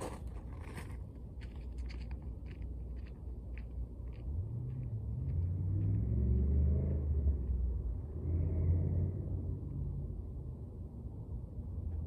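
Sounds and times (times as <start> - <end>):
vehicle engine rumbling past: 4.2 - 12.0.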